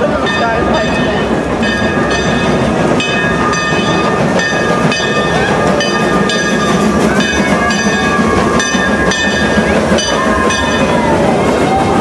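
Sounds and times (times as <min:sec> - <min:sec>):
steam locomotive rumble: 0:00.0 - 0:12.0.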